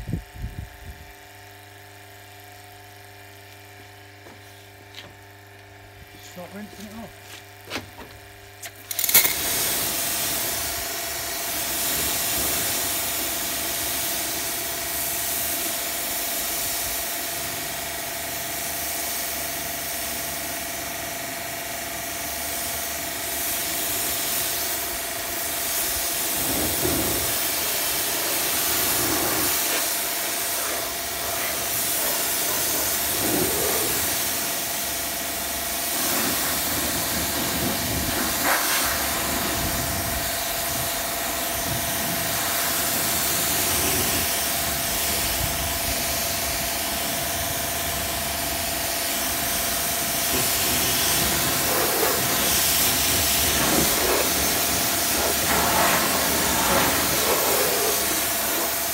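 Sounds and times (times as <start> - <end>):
pressure washer motor: 3.4 - 58.9
pressure washer jet hissing: 8.9 - 17.5, 23.2 - 35.2, 35.8 - 58.9.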